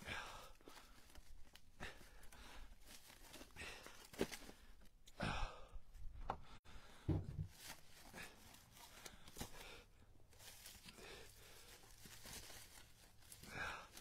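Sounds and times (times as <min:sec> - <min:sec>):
dry leaves rustling underfoot: 0:00.6 - 0:04.6, 0:07.4 - 0:14.0
dull thump: 0:07.0 - 0:07.6.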